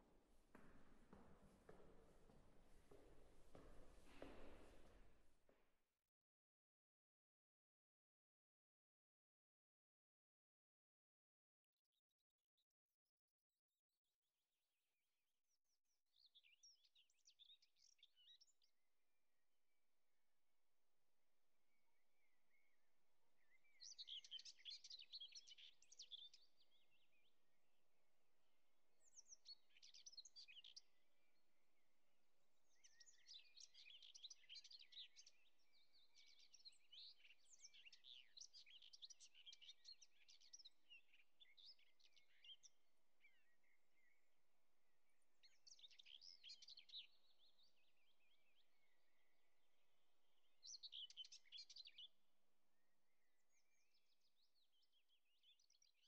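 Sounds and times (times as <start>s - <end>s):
faint birdsong chirping: 21.6s - 56.0s.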